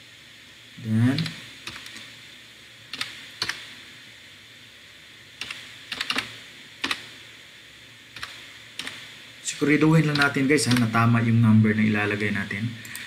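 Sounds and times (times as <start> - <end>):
computer keyboard typing: 1.2 - 2.0, 5.4 - 7.0, 8.2 - 9.0, 10.0 - 11.0.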